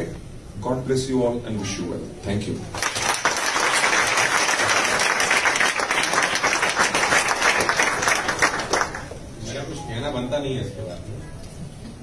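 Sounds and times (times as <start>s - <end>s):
audience applauding: 2.8s - 9.2s.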